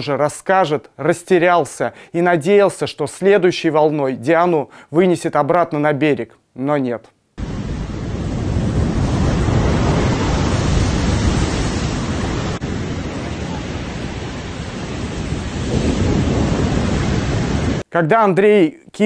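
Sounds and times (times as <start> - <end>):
storm surf breaking on shore: 7.4 - 17.8
wind rumbling on microphone: 7.4 - 17.8.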